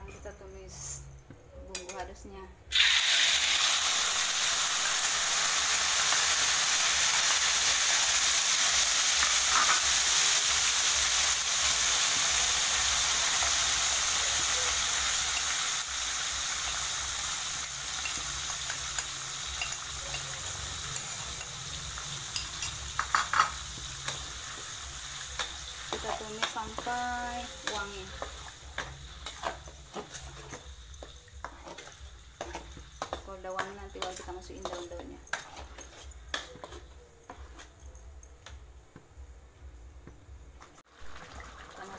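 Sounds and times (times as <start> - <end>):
spice paste sizzling in hot oil: 2.7 - 37.8.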